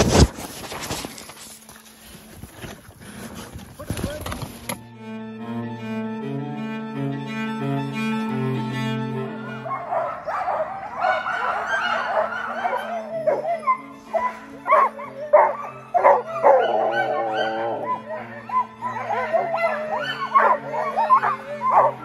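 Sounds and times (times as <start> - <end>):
cello music: 4.2 - 22.0
sled dogs whining and yipping: 9.5 - 22.0
dogs barking sharply: 9.7 - 22.0.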